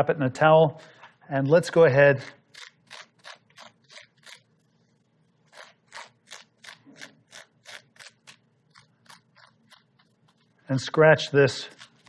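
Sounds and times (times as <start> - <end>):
fork scraping squash: 1.7 - 10.7.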